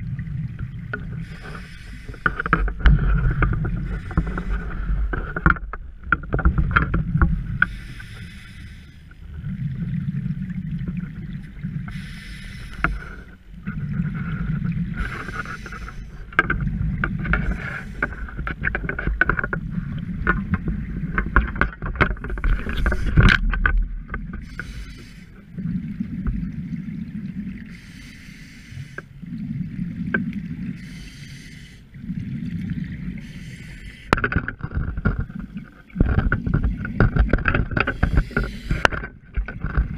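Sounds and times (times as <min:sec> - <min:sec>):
exhaled bubbles rumbling: 0:00.0 - 0:07.8, 0:09.2 - 0:27.9, 0:29.2 - 0:31.1, 0:31.9 - 0:39.9
regulator hissing inhale: 0:01.2 - 0:02.7, 0:07.6 - 0:09.2, 0:11.9 - 0:13.4, 0:15.0 - 0:16.3, 0:24.4 - 0:25.4, 0:27.7 - 0:29.2, 0:30.8 - 0:32.0, 0:33.2 - 0:34.2, 0:37.9 - 0:38.9.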